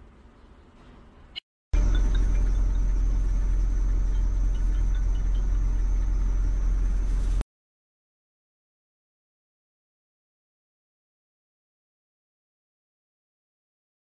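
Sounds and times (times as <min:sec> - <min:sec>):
faint high whine: 0:01.2 - 0:07.4
vehicle engine rumble: 0:01.8 - 0:07.4.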